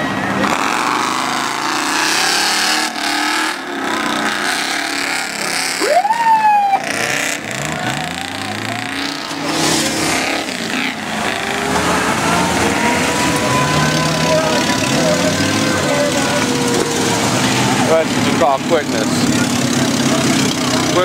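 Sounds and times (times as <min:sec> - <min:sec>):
outdoor crowd noise: 0:00.0 - 0:21.0
truck engines revving: 0:00.0 - 0:21.0.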